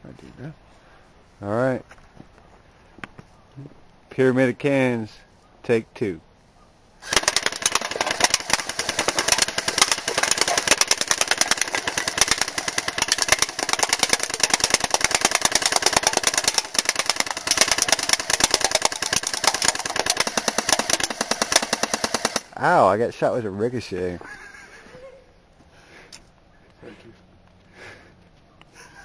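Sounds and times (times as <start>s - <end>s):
pellets knocking down cans: 7.0s - 22.5s
electric gun full-auto burst: 7.0s - 22.6s.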